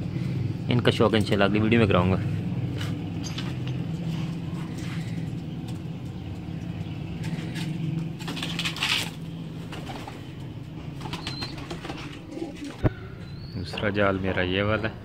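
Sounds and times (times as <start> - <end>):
steady low hum: 0.0 - 13.4
pigeons cooing: 2.7 - 13.5.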